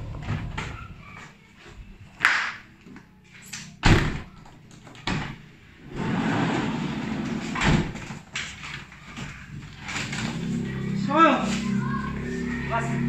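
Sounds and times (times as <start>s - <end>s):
loud door thud: 3.8s - 4.4s, 6.0s - 8.2s
sliding van door opening: 5.2s - 8.3s
people scuffling and knocking: 6.0s - 10.6s.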